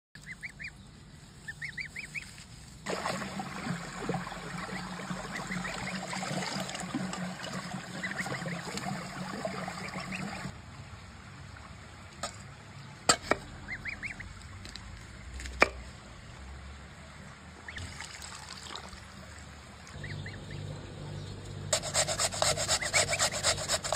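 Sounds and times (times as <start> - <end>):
gosling peeping: 0.2 - 0.8, 1.4 - 2.4, 4.2 - 6.6, 7.8 - 10.5, 13.4 - 14.3, 20.0 - 23.9
knife cutting on wooden board: 21.8 - 23.9.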